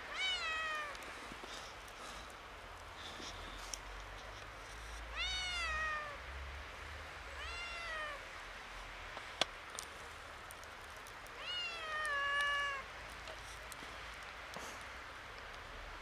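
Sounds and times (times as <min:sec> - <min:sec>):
kitten meowing: 0:00.1 - 0:00.9, 0:05.1 - 0:06.2, 0:07.3 - 0:08.2, 0:11.4 - 0:12.8.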